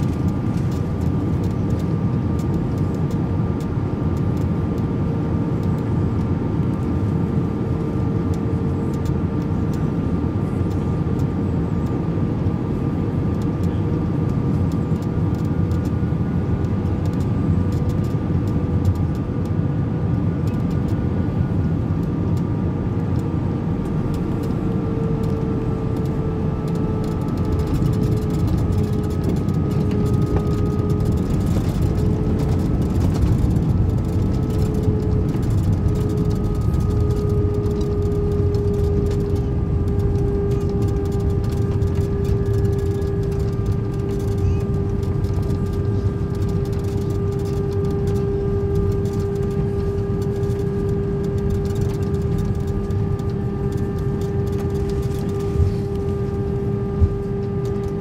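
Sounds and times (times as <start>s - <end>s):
constant tonal hum: 0.0s - 58.0s
jet engines and airflow rushing: 0.0s - 58.0s.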